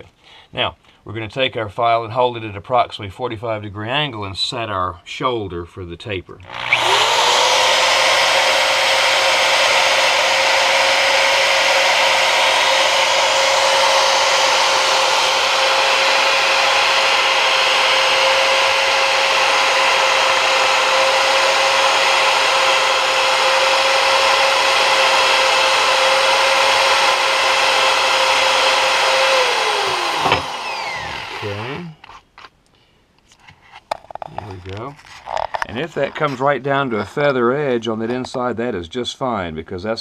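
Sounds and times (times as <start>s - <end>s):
cordless drill motor whine: 6.5s - 32.1s.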